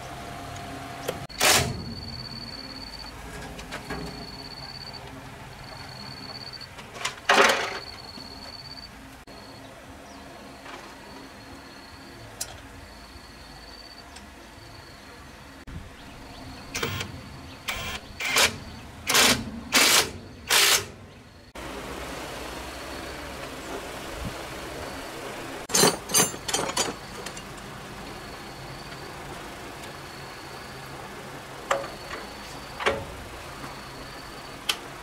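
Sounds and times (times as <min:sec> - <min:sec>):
power tool bursts: 0:17.7 - 0:20.9
metal tools clinking: 0:25.7 - 0:27.7.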